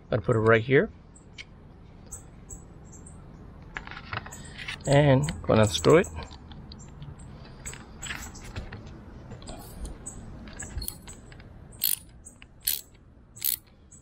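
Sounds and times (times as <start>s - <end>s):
socket ratchet clicking: 10.8s - 11.1s, 11.8s - 13.7s.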